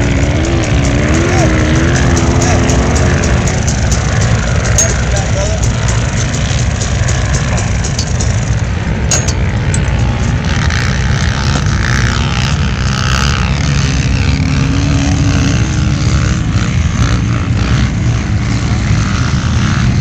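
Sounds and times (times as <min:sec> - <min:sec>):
distant off-road vehicle engines: 0:00.0 - 0:20.0
steady low rumble: 0:03.0 - 0:14.4.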